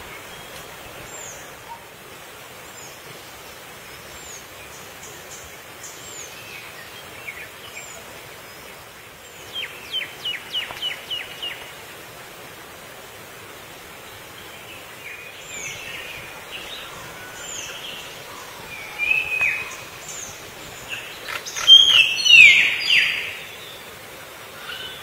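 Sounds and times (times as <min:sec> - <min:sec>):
outdoor hiss: 0:00.0 - 0:25.0
bird chirps: 0:15.5 - 0:23.4.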